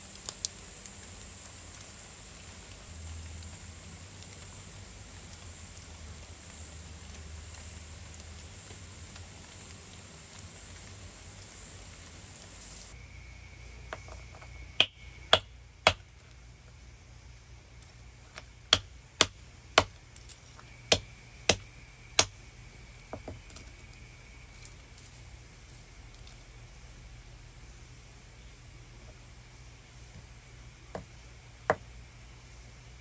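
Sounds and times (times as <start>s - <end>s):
stone knocking on slag: 13.9s - 16.0s, 18.3s - 20.0s, 20.9s - 21.6s.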